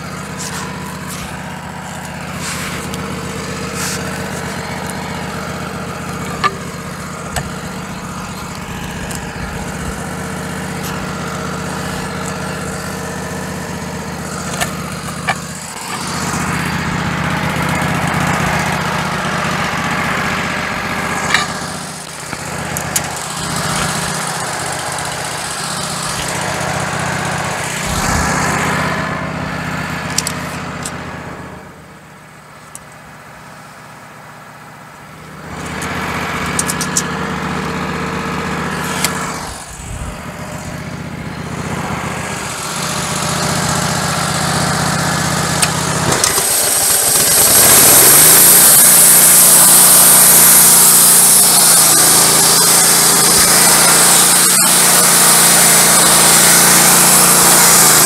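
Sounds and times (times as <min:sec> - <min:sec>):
sawmill engine running: 0:00.0 - 0:58.0
sharp knocks and clanks: 0:06.1 - 0:07.7, 0:21.2 - 0:26.7.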